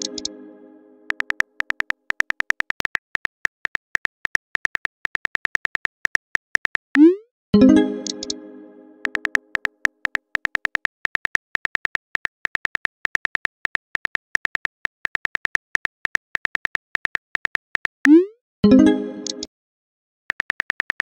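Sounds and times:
smartphone keyboard typing clicks: 0:00.0 - 0:00.3, 0:01.1 - 0:06.8, 0:08.0 - 0:08.4, 0:09.0 - 0:18.0, 0:20.3 - 0:21.0
chime ringing: 0:07.6 - 0:09.2.

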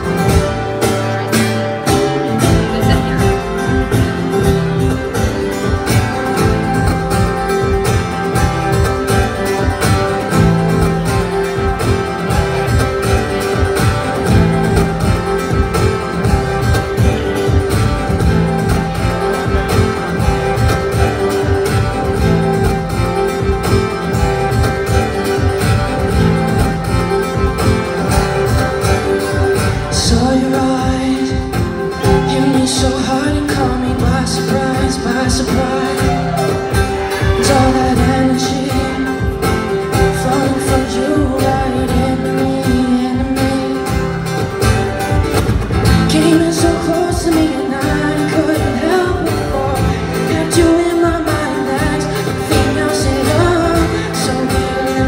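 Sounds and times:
acoustic guitar strumming: 0:00.0 - 0:55.0.

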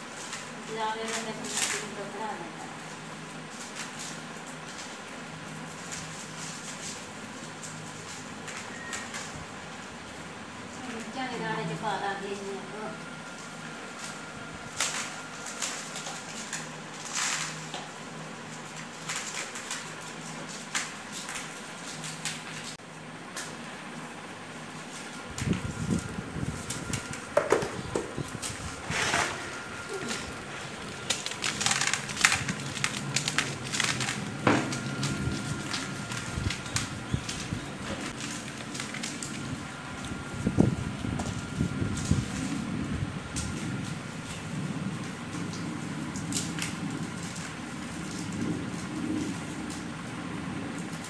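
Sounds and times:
maize kernels crackling into plastic tub: 0:00.0 - 0:09.8, 0:13.9 - 0:23.6, 0:24.8 - 0:40.5.

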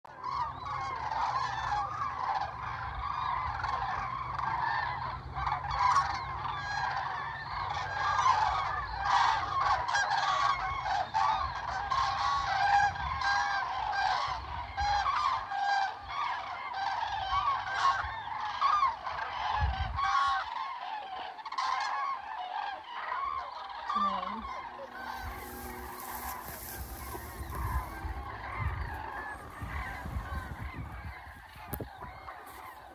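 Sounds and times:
cranes trumpeting: 0:23.0 - 0:32.9.

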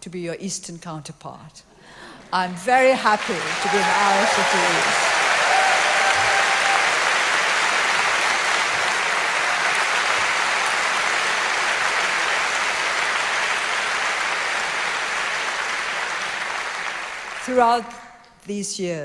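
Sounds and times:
audience applauding: 0:02.7 - 0:17.6.

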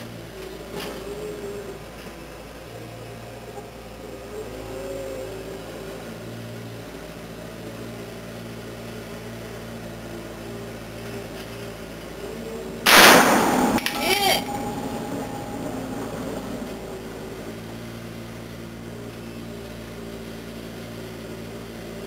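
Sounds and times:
steady mechanical hum: 0:00.0 - 0:22.0
loud gunshot: 0:12.9 - 0:16.8.

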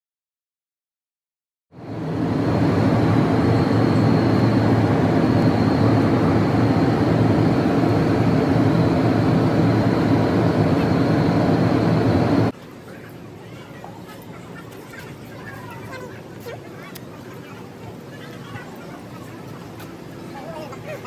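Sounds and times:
jet cabin drone: 0:01.7 - 0:12.6
faint high whine: 0:01.8 - 0:12.5.

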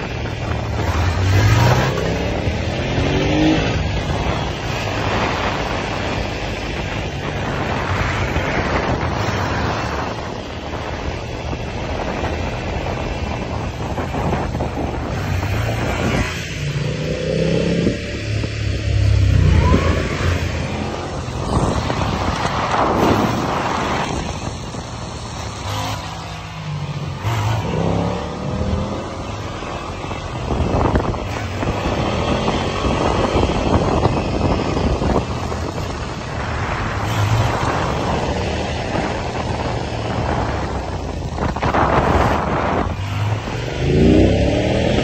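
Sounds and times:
motorcycle engines revving: 0:00.0 - 0:45.0
wind rushing over microphone: 0:00.0 - 0:45.0.

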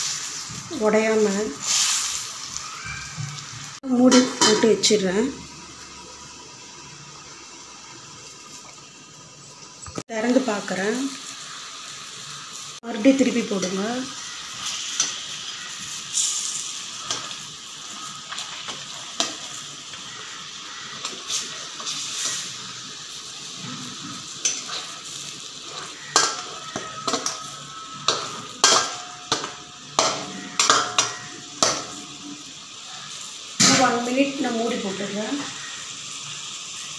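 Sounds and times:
food sizzling in a pan: 0:00.0 - 0:36.9
metal skimmer scraping a pan: 0:23.5 - 0:32.2.

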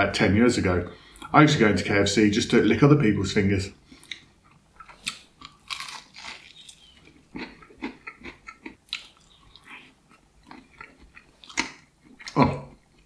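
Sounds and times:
person crunching fried chicken: 0:04.8 - 0:12.4.

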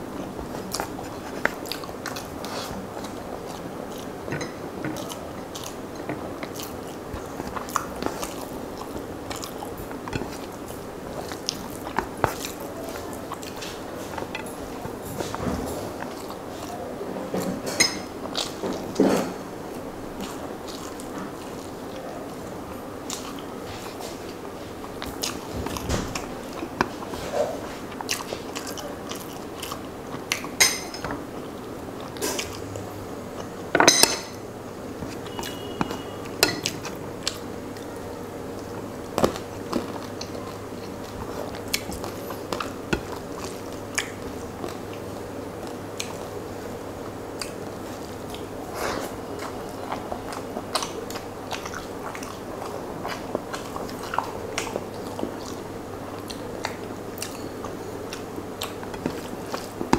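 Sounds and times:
wet chewing and lip smacks: 0:39.2 - 0:46.4, 0:49.1 - 0:59.9.

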